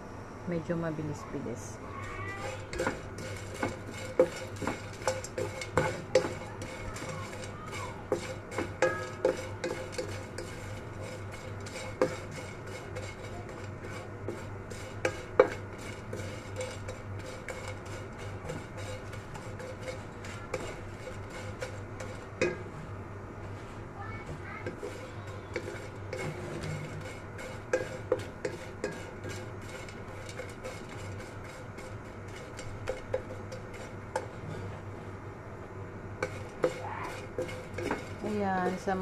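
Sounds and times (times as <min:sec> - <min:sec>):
spatula scraping dried fish in pan: 0:02.0 - 0:22.9, 0:23.5 - 0:34.8, 0:36.2 - 0:39.0.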